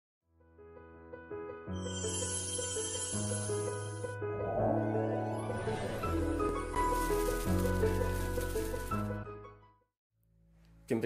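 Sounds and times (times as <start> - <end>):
bright high shimmer: 1.8 - 4.2.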